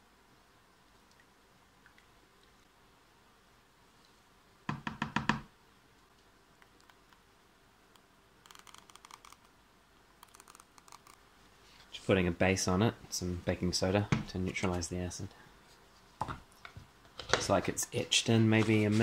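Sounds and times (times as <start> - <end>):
faint rapid ticking of skewer: 8.4 - 9.5.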